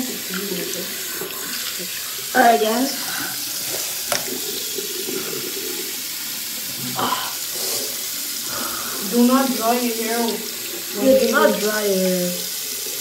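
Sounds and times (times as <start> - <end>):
faucet water splashing into basin: 0.0 - 13.0.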